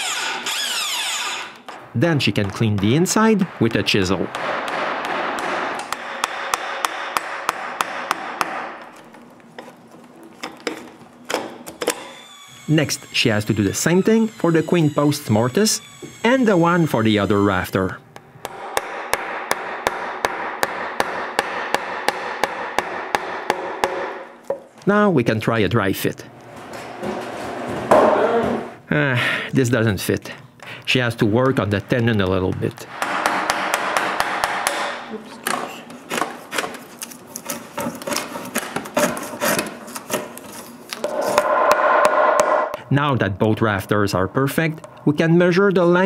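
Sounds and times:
chisel being struck: 4.3 - 8.8, 18.4 - 24.6.

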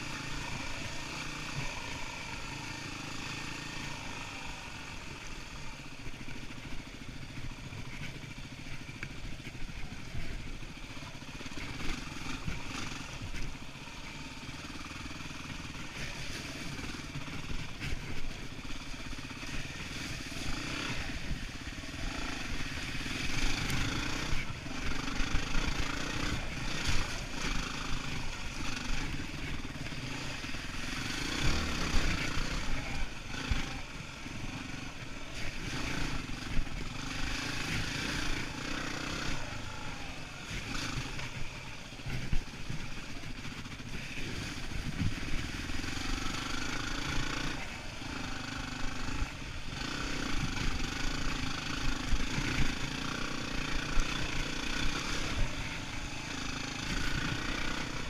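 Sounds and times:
motorcycle engine running: 0.0 - 58.0.

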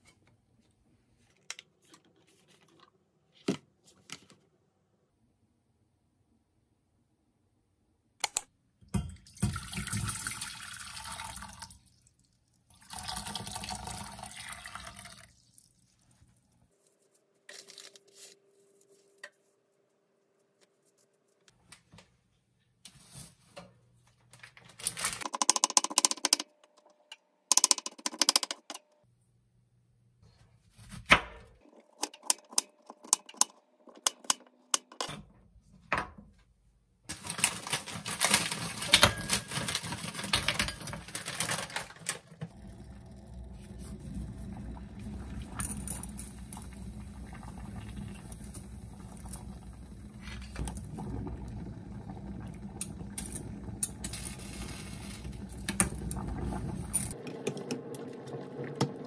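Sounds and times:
water pouring into a metal pot: 9.2 - 16.1
sharp clicks and knocks: 25.2 - 29.0.

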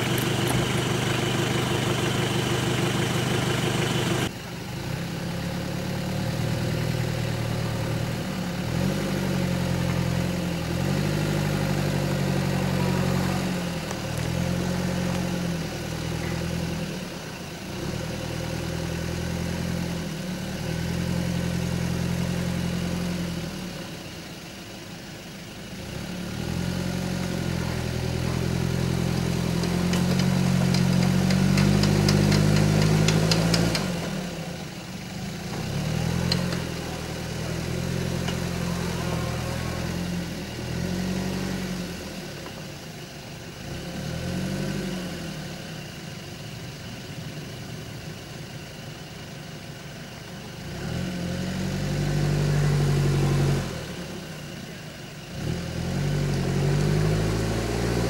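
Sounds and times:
truck engine under load: 0.0 - 25.0, 25.7 - 48.8, 49.6 - 58.0.

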